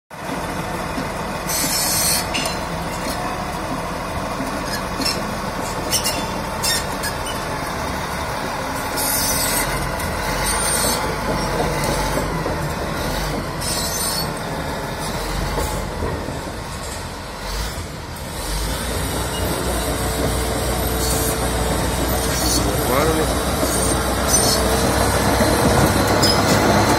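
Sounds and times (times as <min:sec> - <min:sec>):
diesel engine rumbling: 0:00.1 - 0:26.9
steel tracks clanking and squealing: 0:00.2 - 0:26.9
sharp metal clanks: 0:02.2 - 0:03.2.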